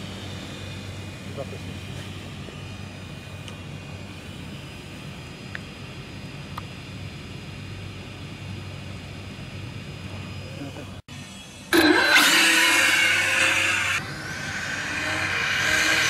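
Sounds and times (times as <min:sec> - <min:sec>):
low outdoor rumble: 0:00.0 - 0:11.7
faint hum: 0:00.0 - 0:12.0.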